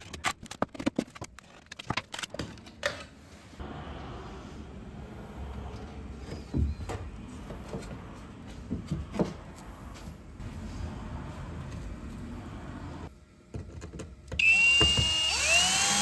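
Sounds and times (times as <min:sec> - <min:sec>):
steady low hum: 0:03.1 - 0:13.6.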